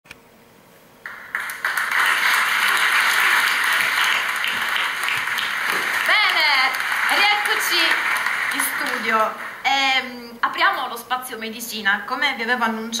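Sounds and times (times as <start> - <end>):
audience applauding: 1.0 - 9.7.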